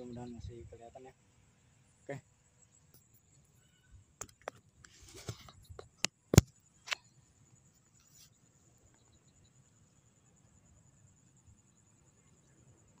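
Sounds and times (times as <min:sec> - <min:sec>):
short rustle: 0:04.8 - 0:05.8.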